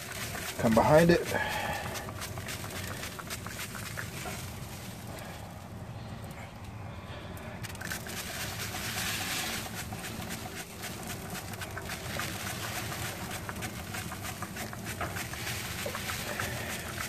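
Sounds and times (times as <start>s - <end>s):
spray bottle hissing: 0.0s - 4.7s
wood fire crackling: 0.0s - 17.0s.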